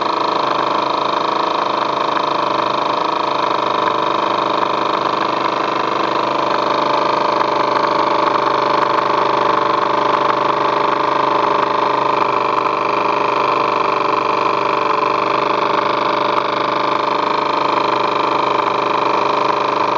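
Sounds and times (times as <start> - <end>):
model steam engine running: 0.0 - 19.9.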